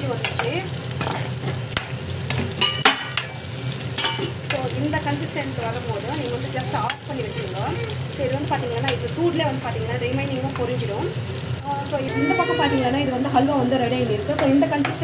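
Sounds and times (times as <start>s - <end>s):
nuts sizzling in a pan: 0.0s - 15.0s.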